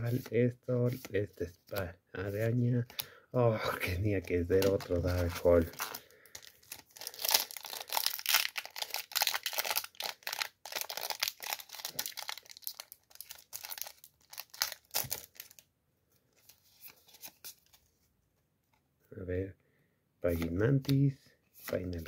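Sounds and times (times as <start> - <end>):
faint rustling of cards: 0.0 - 18.8, 20.2 - 22.0
foil wrapper tearing and crinkling: 4.6 - 15.6.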